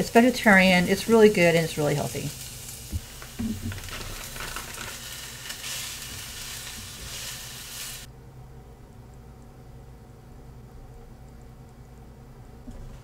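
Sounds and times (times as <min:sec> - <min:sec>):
noodles sizzling in a skillet: 0:00.0 - 0:08.1.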